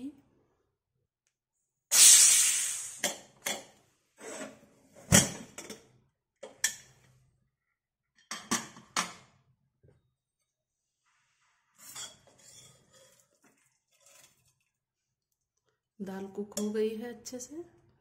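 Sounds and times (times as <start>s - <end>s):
steam hissing: 1.9s - 3.0s.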